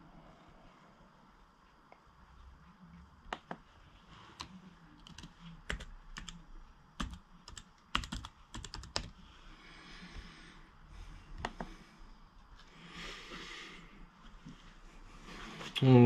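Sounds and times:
laptop keyboard typing: 4.4s - 6.4s, 7.0s - 9.2s.

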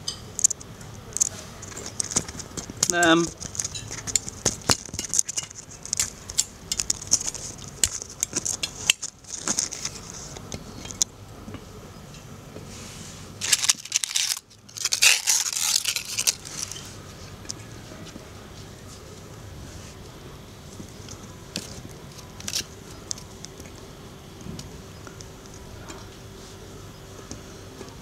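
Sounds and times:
dry plant material crackling: 0.4s - 11.0s, 13.4s - 19.2s, 19.8s - 23.8s
loud rustling bursts: 13.4s - 16.8s.

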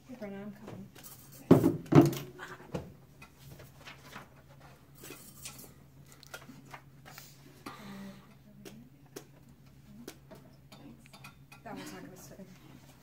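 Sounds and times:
low room hum: 0.0s - 13.0s
paper rustling: 3.4s - 4.8s.

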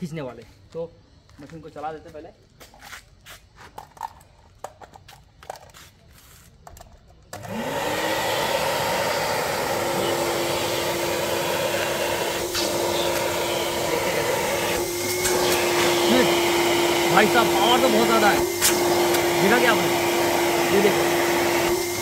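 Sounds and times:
vacuum cleaner whine: 7.3s - 22.0s.

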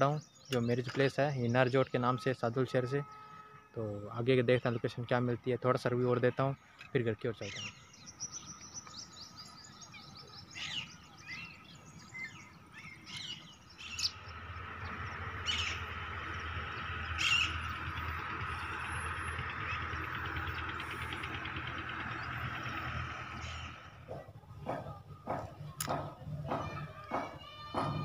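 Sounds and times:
small birds chirping: 0.0s - 28.0s
steady rushing rumble: 13.4s - 26.2s.

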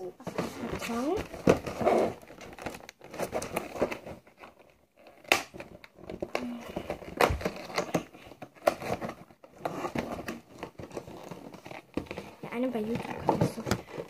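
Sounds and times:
box rustling and crinkling: 0.0s - 14.0s.

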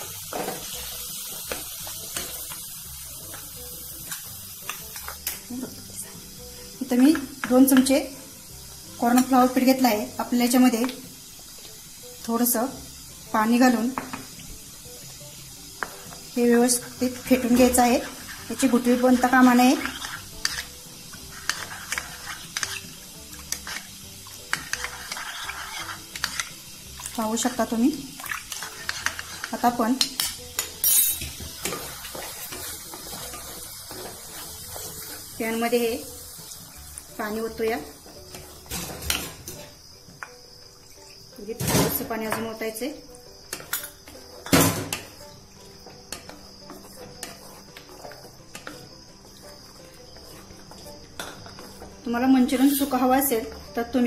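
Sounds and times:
spoon stirring in ceramic bowl: 17.5s - 27.2s, 28.2s - 35.2s, 46.1s - 52.0s
cricket trill: 36.1s - 54.0s.

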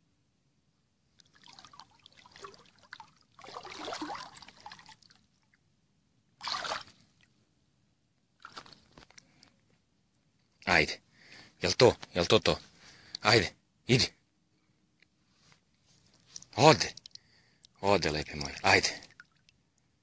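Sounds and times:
water sloshing and splashing: 1.2s - 5.5s, 6.4s - 7.3s, 8.4s - 9.2s.

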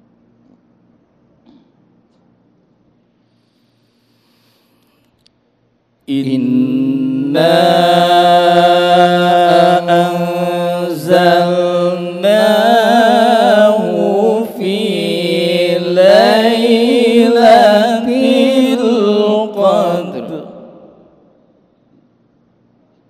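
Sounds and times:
man chanting melodically: 6.1s - 20.8s.

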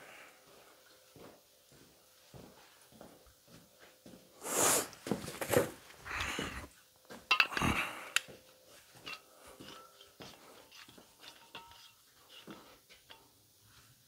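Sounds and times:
tools clattering and knocking: 5.2s - 8.0s, 8.8s - 13.4s.

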